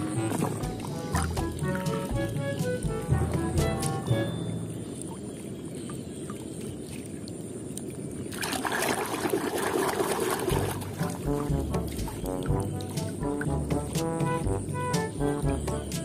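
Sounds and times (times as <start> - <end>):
water sloshing and splashing in tub: 0.0 - 4.1, 4.7 - 16.0
background music: 0.0 - 5.1, 10.5 - 16.0.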